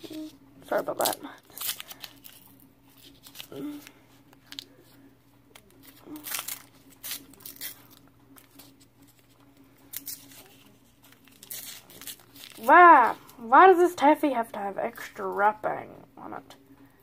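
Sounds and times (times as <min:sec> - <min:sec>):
faint steady hum: 0:00.0 - 0:17.0
candy wrapper crinkling and tearing: 0:00.1 - 0:13.5.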